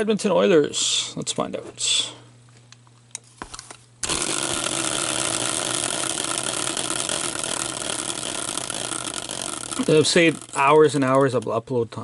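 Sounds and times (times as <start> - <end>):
prize spinner whirring: 4.0 - 11.5.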